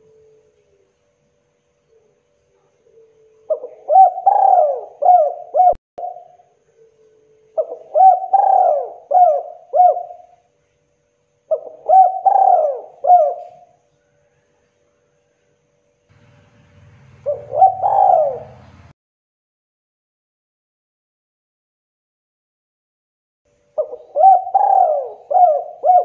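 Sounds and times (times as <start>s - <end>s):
dove cooing: 1.9s - 7.0s, 7.6s - 10.4s, 11.5s - 13.8s, 17.0s - 18.9s, 23.8s - 26.0s.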